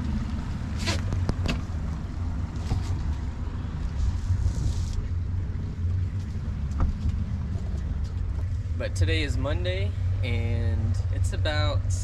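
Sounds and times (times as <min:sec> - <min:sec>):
outboard motor running at low speed: 0:00.0 - 0:12.0.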